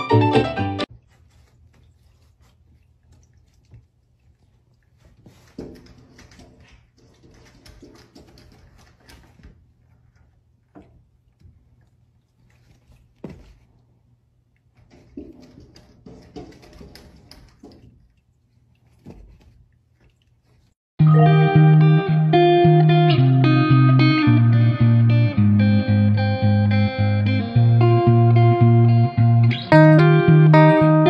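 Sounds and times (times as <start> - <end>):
faint rustling of cats moving: 0.9 - 20.8.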